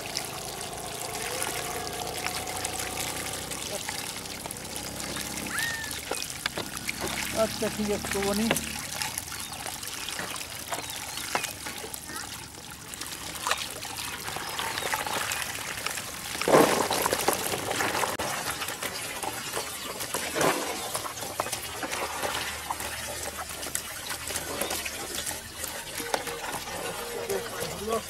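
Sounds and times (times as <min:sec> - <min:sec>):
water trickling and splashing: 0:00.0 - 0:28.0.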